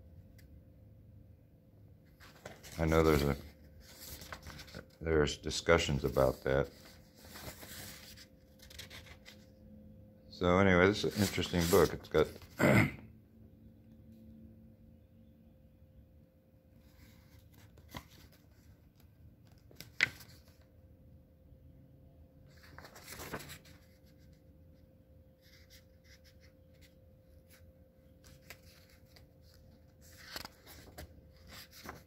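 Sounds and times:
paper rustling: 0:02.0 - 0:09.5, 0:10.9 - 0:12.6, 0:16.8 - 0:20.6, 0:22.5 - 0:24.4, 0:25.4 - 0:32.0
page turning: 0:02.1 - 0:09.5, 0:10.9 - 0:12.6, 0:16.9 - 0:20.6, 0:22.5 - 0:24.4, 0:25.4 - 0:32.0.

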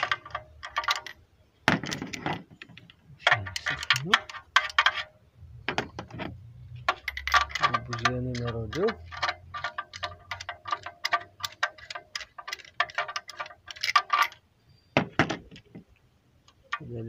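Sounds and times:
ratchet wrench clicking: 0:06.9 - 0:14.4.

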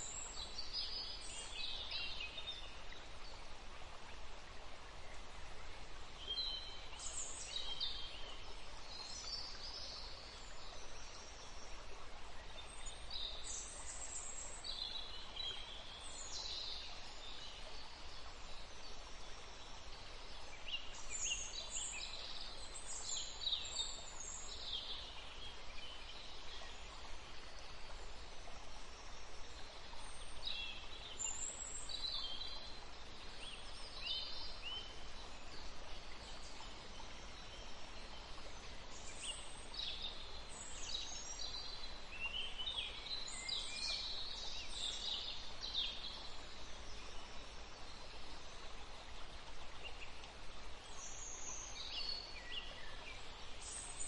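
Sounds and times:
faint outdoor background hiss: 0:00.0 - 0:54.0.

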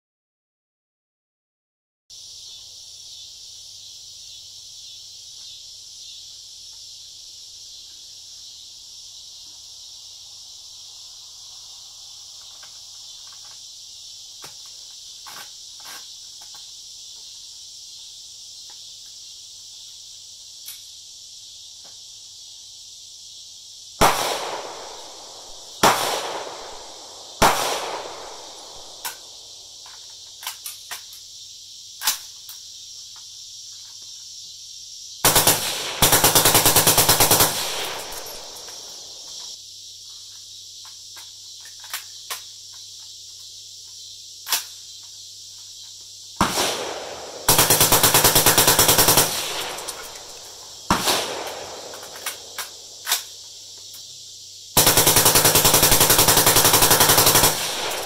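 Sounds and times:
single gunshots: 0:24.0 - 0:29.2, 0:35.2 - 0:39.3, 0:46.4 - 0:52.8, 0:55.6 - 0:58.0
metallic clicks of rifle handling: 0:29.8 - 0:31.2, 0:40.8 - 0:42.4, 0:51.5 - 0:53.3
suppressed machine gun burst: 0:35.2 - 0:39.1, 0:46.4 - 0:52.6, 0:54.8 - 0:58.0.

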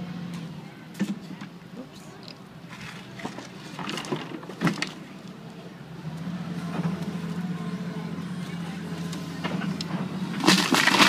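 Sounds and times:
excavator diesel engine running: 0:00.0 - 0:11.0
wood breaking and debris falling: 0:03.2 - 0:05.0, 0:10.4 - 0:11.0.

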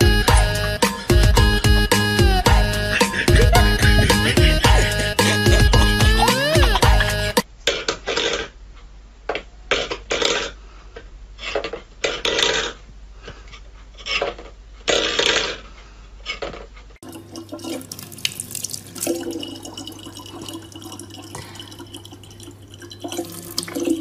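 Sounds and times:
tap water running into plastic bottle: 0:17.0 - 0:24.0.

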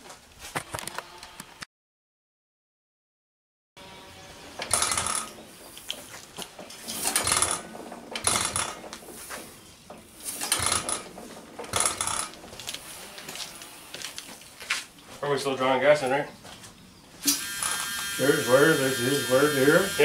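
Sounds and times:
engine parts clattering: 0:04.6 - 0:13.3.

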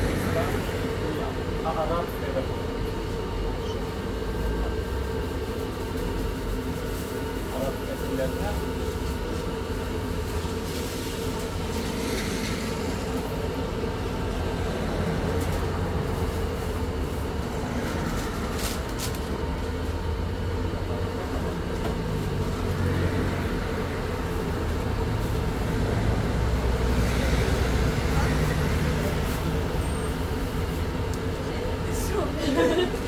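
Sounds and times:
low rumble with hum: 0:08.7 - 0:33.0.

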